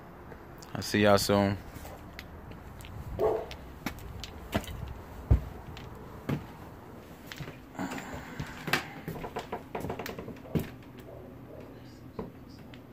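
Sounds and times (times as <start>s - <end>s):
footsteps on kitchen floor: 1.9s - 11.1s.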